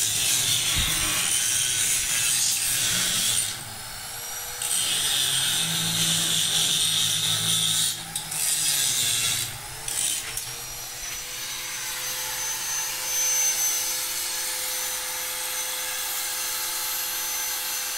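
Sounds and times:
angle grinder grinding steel: 0.0 - 13.7.

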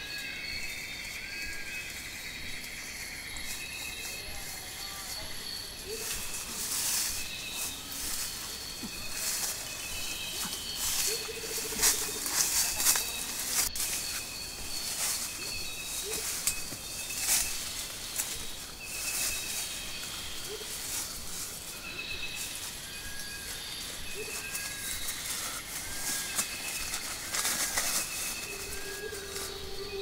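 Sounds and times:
birds calling: 0.0 - 30.0
dry leaves crunching and rustling: 0.0 - 30.0.

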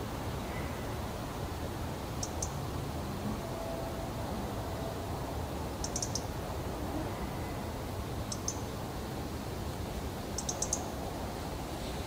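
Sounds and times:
robin ticking calls: 2.2 - 2.6, 5.8 - 6.3, 8.2 - 8.7, 10.4 - 11.0.

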